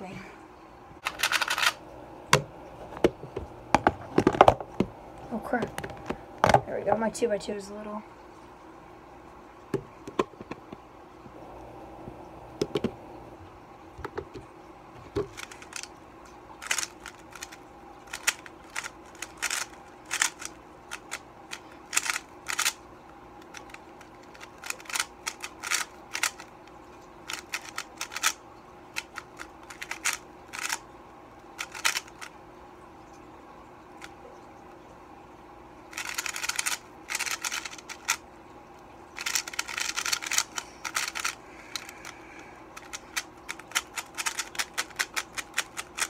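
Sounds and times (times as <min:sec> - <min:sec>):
speedcube layers clicking: 0:01.0 - 0:01.8, 0:15.3 - 0:15.9, 0:16.6 - 0:22.8, 0:23.4 - 0:26.5, 0:27.3 - 0:28.4, 0:29.0 - 0:30.8, 0:31.6 - 0:32.3, 0:35.9 - 0:38.2, 0:39.2 - 0:41.9, 0:42.8 - 0:46.0.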